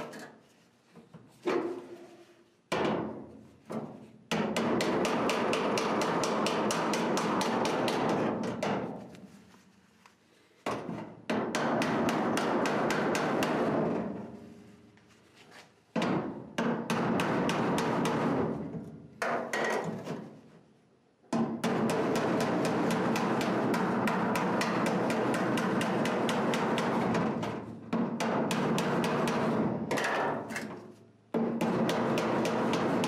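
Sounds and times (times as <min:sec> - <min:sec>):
hammer tapping on sheet metal: 0:02.7 - 0:09.0, 0:10.7 - 0:14.2, 0:15.9 - 0:20.2, 0:21.3 - 0:30.7, 0:31.3 - 0:33.0.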